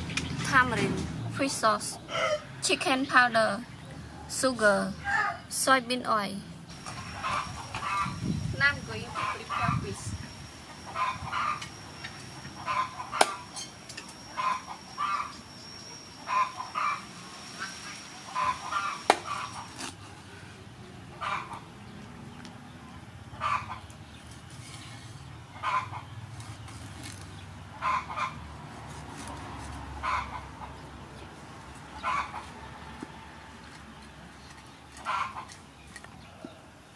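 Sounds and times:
chicken clucking: 12.6s - 13.2s, 25.5s - 26.1s, 32.0s - 32.5s
cleaver striking wooden board: 13.2s - 13.4s, 19.1s - 19.9s.

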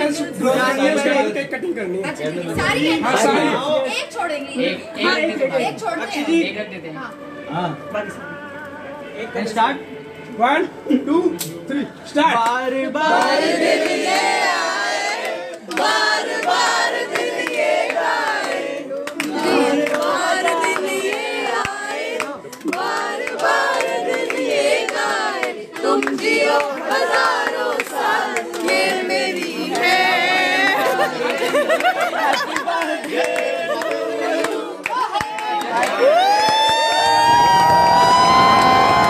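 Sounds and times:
group singing: 7.1s - 35.1s
hand clapping: 15.5s - 29.9s.

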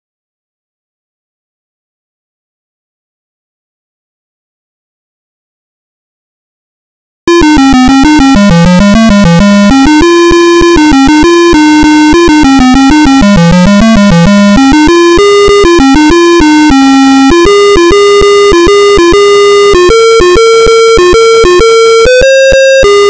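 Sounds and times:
buzzy square-wave melody: 7.3s - 23.0s.

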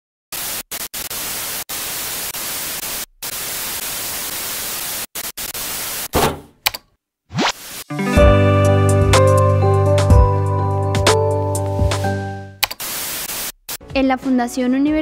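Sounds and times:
television static hiss: 0.4s - 6.2s, 12.8s - 13.8s.

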